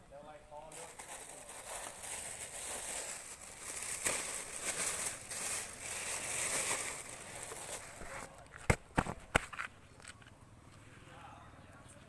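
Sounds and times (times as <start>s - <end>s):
plastic bag rustling: 0.7s - 8.3s.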